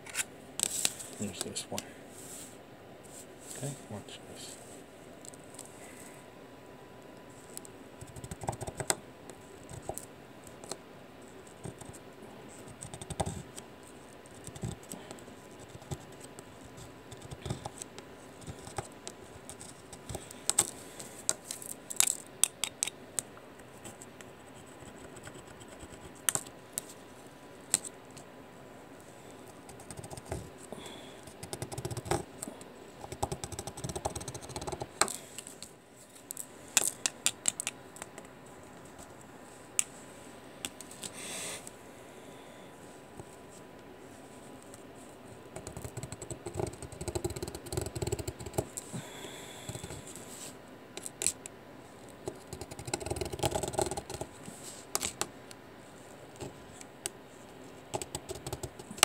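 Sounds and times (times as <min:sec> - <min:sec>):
sharp clicks and scratches: 0:14.3 - 0:23.0, 0:31.2 - 0:35.7, 0:45.6 - 0:48.8, 0:52.2 - 0:54.3, 0:57.9 - 0:59.0.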